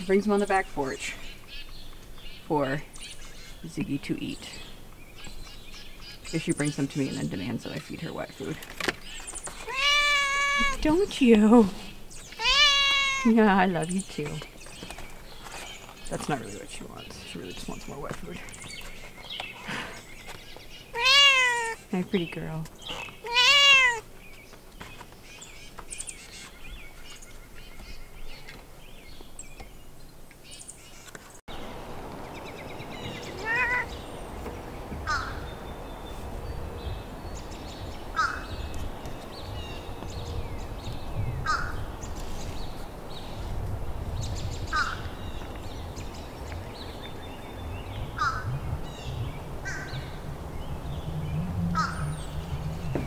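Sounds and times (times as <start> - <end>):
bird calling: 0.0 - 29.8, 30.4 - 43.6, 44.3 - 53.0
wind noise on microphone: 31.5 - 53.0.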